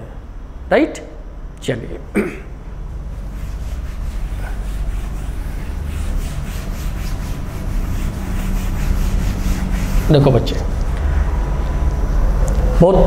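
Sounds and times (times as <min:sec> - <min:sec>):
duster rubbing a board: 0:03.1 - 0:11.0.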